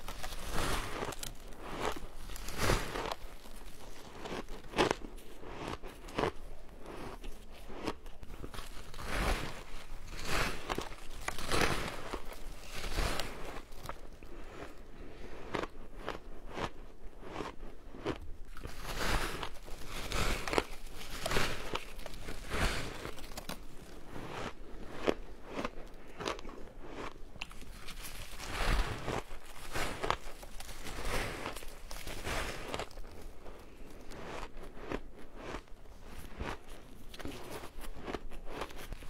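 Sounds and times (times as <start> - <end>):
crunching ice chewing: 0.0 - 39.0.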